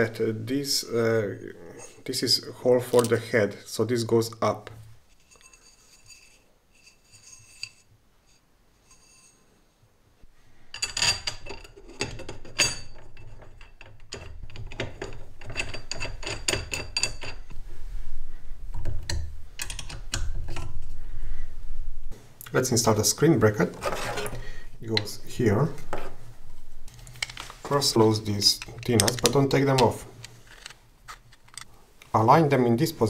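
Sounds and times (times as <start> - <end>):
metal parts clinking and clattering: 10.7 - 17.6, 18.7 - 20.9, 26.9 - 31.7.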